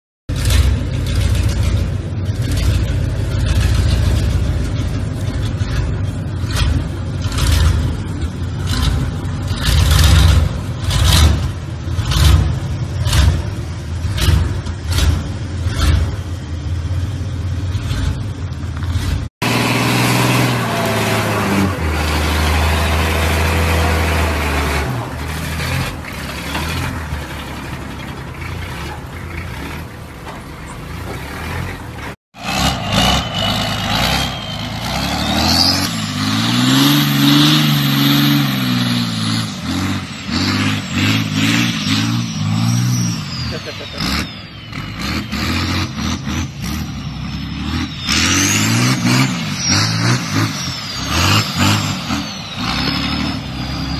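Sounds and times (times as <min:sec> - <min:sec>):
pickup truck engine revving: 0:00.3 - 0:30.2, 0:30.9 - 0:53.9.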